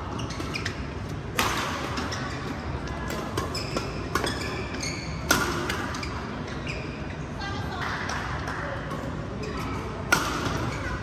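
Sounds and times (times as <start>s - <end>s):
shoes squeaking on court: 0.0s - 1.2s, 1.8s - 7.3s
racket hitting shuttlecock: 0.3s - 6.2s, 9.8s - 11.0s.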